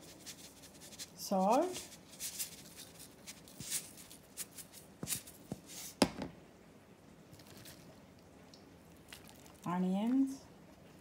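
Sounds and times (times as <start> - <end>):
salt sprinkling on food: 0.0 - 6.0.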